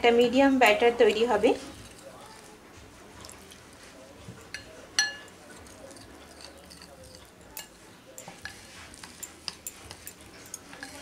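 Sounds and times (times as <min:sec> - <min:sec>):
spoon stirring thick batter: 0:00.0 - 0:11.0
spoon clinking against glass: 0:04.5 - 0:11.0.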